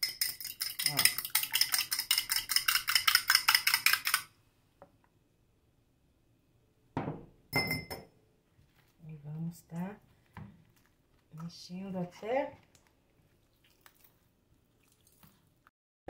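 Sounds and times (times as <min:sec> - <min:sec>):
fork clinking on glass bowl: 0:07.6 - 0:08.0.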